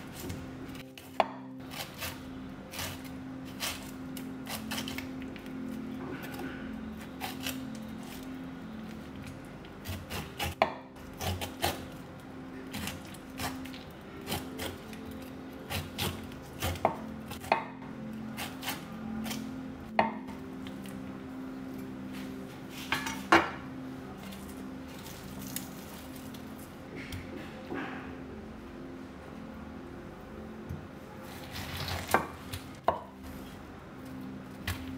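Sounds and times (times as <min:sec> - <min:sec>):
knife slicing pineapple rind: 0:00.0 - 0:19.6, 0:31.2 - 0:33.2.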